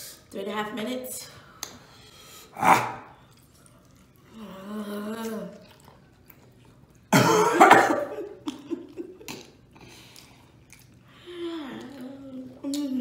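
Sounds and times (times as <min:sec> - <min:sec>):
throat clearing: 0:07.1 - 0:08.1
person coughing harshly: 0:07.1 - 0:08.3.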